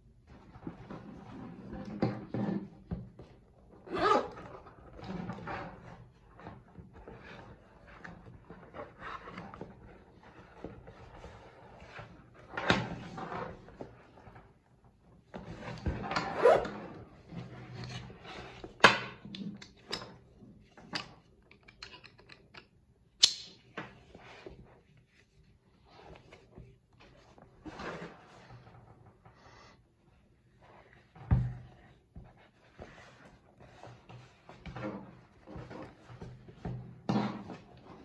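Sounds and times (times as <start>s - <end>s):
leather and strap rustling: 16.3s - 16.6s
zip being worked: 16.3s - 16.8s.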